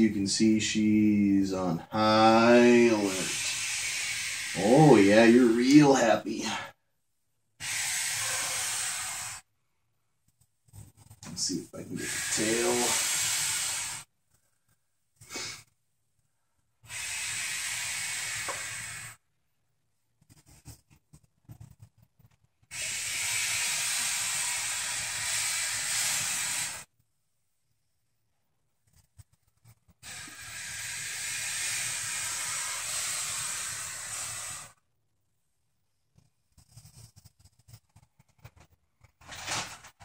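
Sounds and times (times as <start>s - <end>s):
snake hissing: 0.0s - 6.8s, 7.6s - 9.5s, 10.7s - 14.1s, 15.2s - 15.7s, 16.8s - 19.2s, 22.7s - 26.9s, 29.7s - 34.8s.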